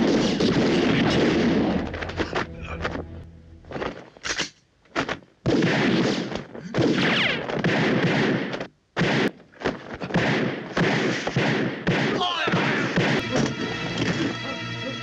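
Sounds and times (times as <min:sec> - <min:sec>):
pistol shots: 0:00.0 - 0:01.8, 0:05.4 - 0:13.3
rapid gunfire: 0:00.0 - 0:01.8, 0:05.4 - 0:13.2.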